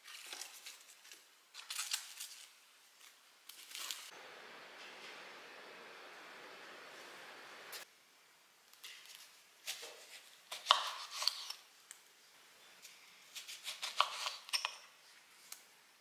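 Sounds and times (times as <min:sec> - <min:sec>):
knife cutting on wooden board: 0:13.4 - 0:14.7.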